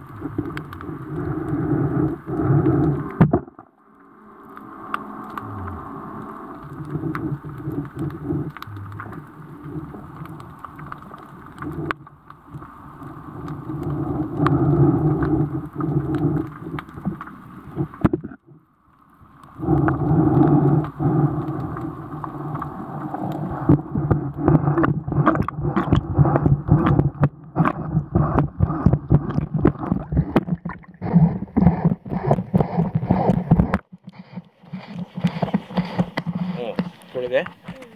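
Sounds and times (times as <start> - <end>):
muffled underwater water sound: 0.0 - 37.9
knocks and rubbing on camera housing: 31.7 - 37.7.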